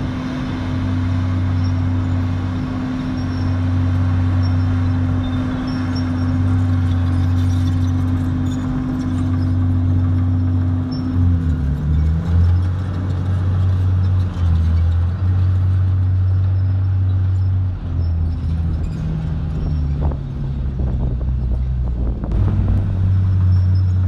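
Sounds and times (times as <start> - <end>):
bulldozer diesel engine running: 0.0 - 24.0.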